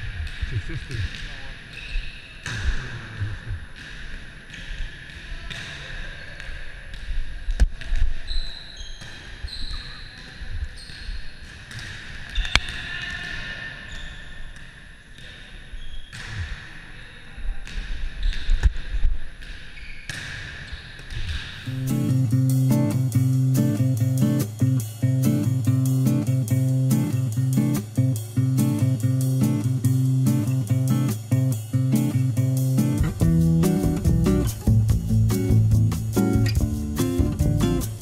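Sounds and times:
sneaker squeaks: 1.1 - 2.9, 7.9 - 18.9, 19.5 - 21.6.

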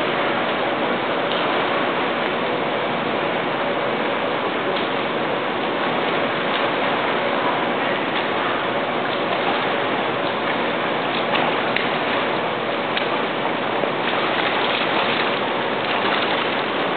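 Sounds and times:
swimmer splashing water: 0.0 - 16.9
sharp splashes: 9.1 - 16.9.

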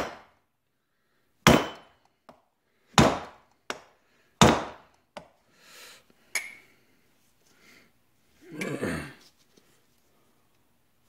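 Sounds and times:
mallet striking metal: 1.5 - 1.9.

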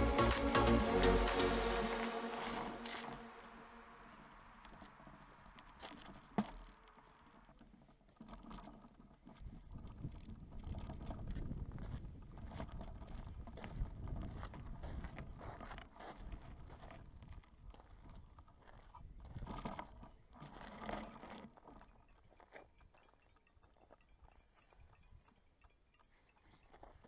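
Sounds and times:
bike tyres rolling over gravel: 2.3 - 22.0.

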